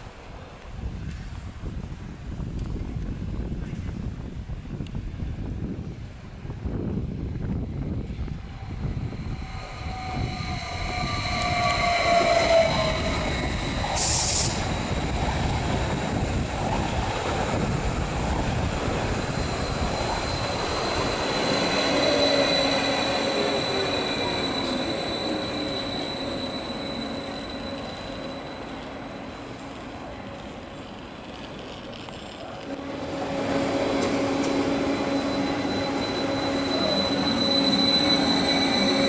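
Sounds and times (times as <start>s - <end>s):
train rolling rumble: 0.0s - 39.0s
high squeal: 8.5s - 15.6s, 19.1s - 29.7s, 32.6s - 39.0s.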